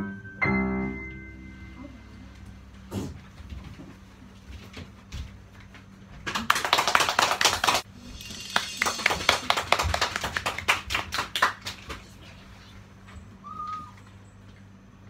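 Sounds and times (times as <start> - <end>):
children clapping: 6.2 - 12.2.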